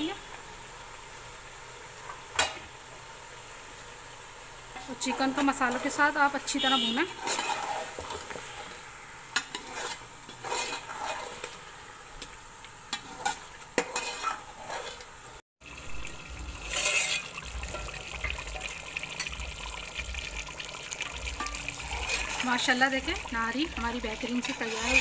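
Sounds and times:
masala sizzling: 0:00.0 - 0:25.0
metal spoon scraping metal pot: 0:07.1 - 0:08.0, 0:09.5 - 0:11.5, 0:13.0 - 0:15.1, 0:16.6 - 0:19.4, 0:21.0 - 0:25.0.

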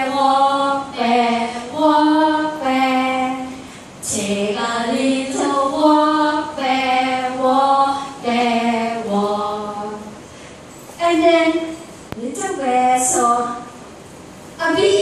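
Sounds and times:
women singing chant-like refrain: 0:00.0 - 0:10.1.

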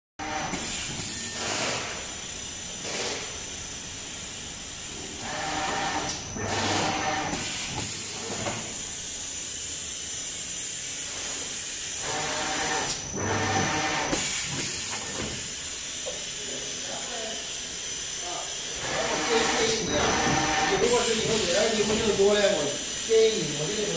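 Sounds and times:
paper feeder air hiss: 0:00.5 - 0:04.4, 0:07.1 - 0:12.1, 0:14.1 - 0:23.9.

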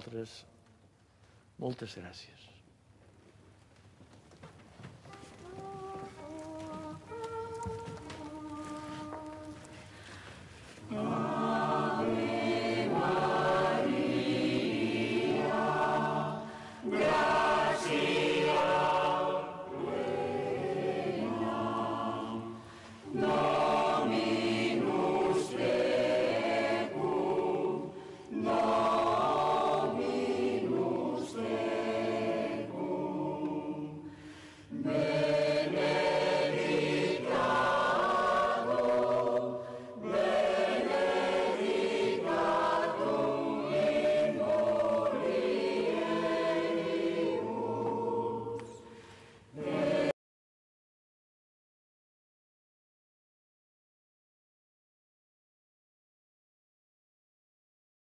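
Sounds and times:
mixed choir singing a hymn: 0:10.7 - 0:50.2.

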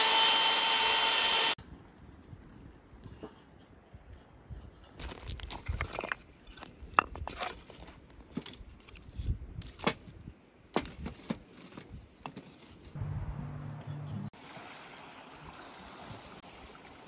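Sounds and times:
low hum: 0:13.0 - 0:14.3.

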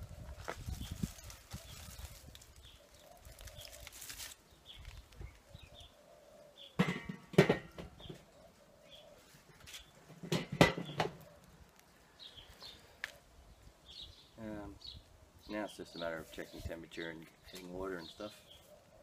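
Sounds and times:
metal lid clanking: 0:06.8 - 0:07.9.

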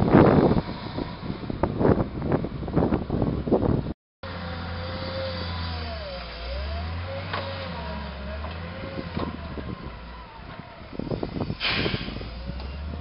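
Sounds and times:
diesel engine droning under load: 0:04.2 - 0:13.0.

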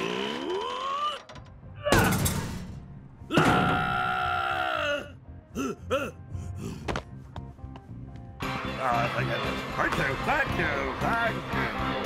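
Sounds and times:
long drawn-out groan: 0:00.0 - 0:01.8
light music: 0:01.3 - 0:12.0.

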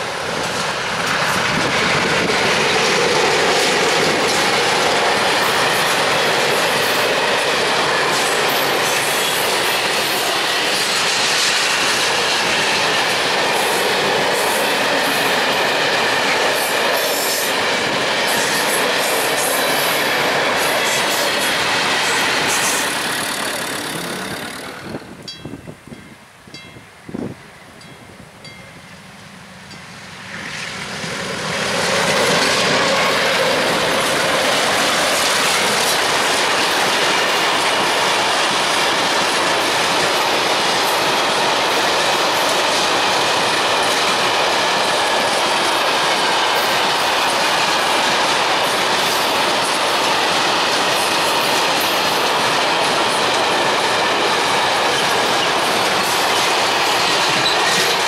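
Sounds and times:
freight train wheels rumbling: 0:00.0 - 0:58.0
faint train wheel squeal: 0:22.0 - 0:25.6, 0:57.0 - 0:58.0.

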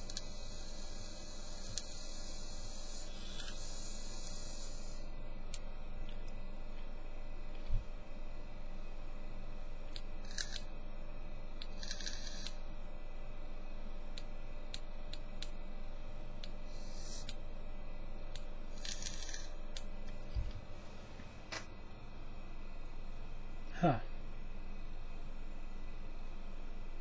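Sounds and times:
vape coil hissing bursts: 0:00.0 - 0:05.1, 0:16.7 - 0:17.3, 0:18.8 - 0:19.5.

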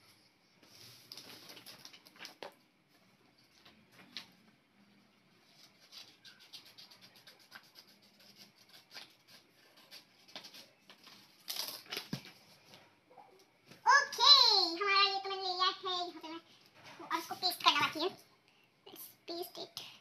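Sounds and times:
paper rustling: 0:00.6 - 0:02.6
scissors snipping paper: 0:05.8 - 0:10.7.

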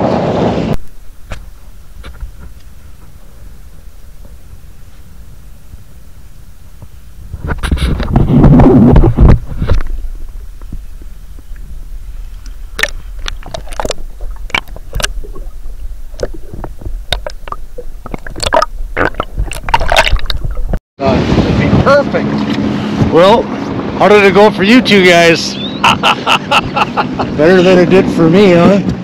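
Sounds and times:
underwater rush of water: 0:00.7 - 0:23.3
underwater clicks and knocks: 0:12.4 - 0:20.8.

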